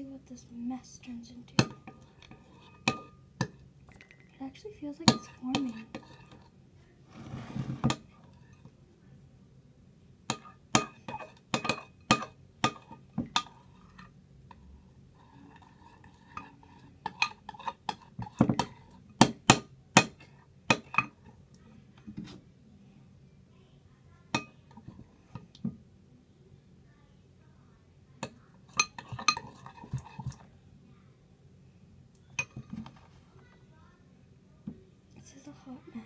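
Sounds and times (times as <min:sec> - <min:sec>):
plastic spoon clinking on glass bowl: 0:01.6 - 0:04.4, 0:28.2 - 0:30.4.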